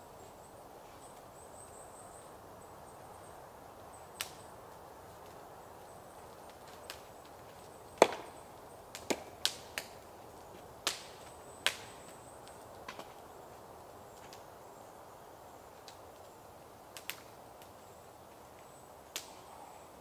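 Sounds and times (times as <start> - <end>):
axe chopping wood: 8.0 - 8.3, 9.0 - 9.3.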